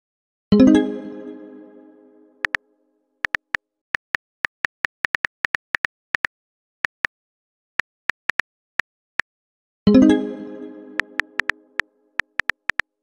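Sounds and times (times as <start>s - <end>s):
smartphone keyboard typing clicks: 3.2s - 7.1s, 8.1s - 8.4s, 11.0s - 11.6s, 12.2s - 12.8s.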